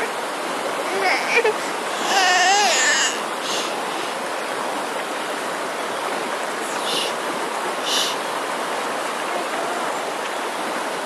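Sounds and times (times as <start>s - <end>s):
river rushing: 0.0s - 11.0s.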